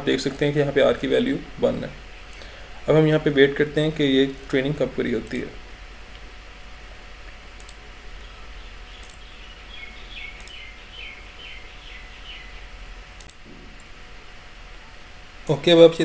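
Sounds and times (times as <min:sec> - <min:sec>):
low electrical hum: 0:00.0 - 0:16.0
computer mouse clicks: 0:07.6 - 0:07.8, 0:09.0 - 0:09.2, 0:10.4 - 0:10.6, 0:13.2 - 0:13.4.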